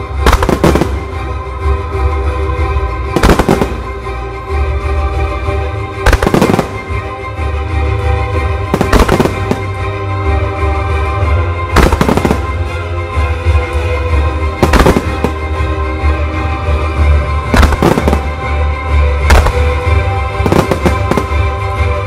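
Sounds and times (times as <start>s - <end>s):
firework shells bursting: 8.8s - 9.7s, 19.2s - 19.8s.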